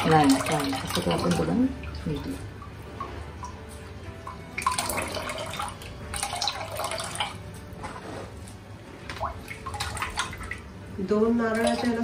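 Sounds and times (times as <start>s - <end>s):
liquid dripping into metal pot: 0.0s - 7.6s, 9.1s - 10.8s.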